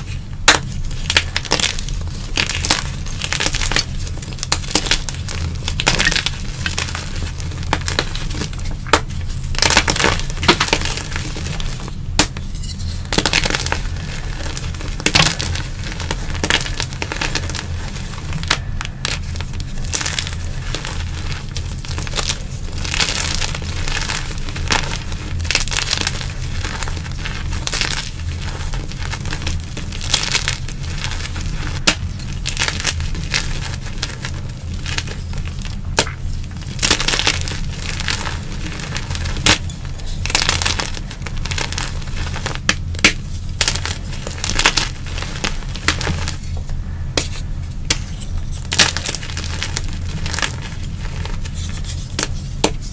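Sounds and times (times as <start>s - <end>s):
chalk crunching in hands: 47.2s - 52.9s.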